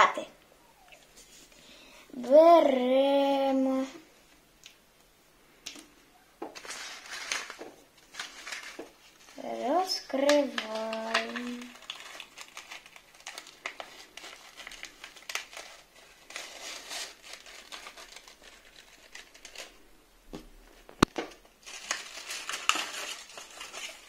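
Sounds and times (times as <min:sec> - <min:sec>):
paper crinkling and rustling: 0:06.5 - 0:19.9, 0:20.6 - 0:24.0.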